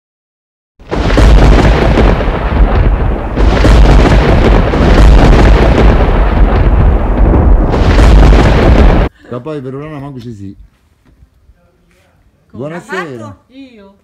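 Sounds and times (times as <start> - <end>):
deep thunder-like rumbling: 0.8 - 9.1.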